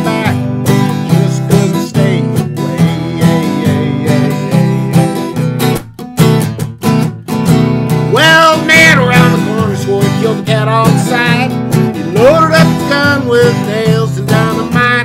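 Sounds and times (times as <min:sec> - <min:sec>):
man singing: 0:00.0 - 0:05.6, 0:08.1 - 0:15.0
acoustic guitar strumming: 0:00.0 - 0:15.0.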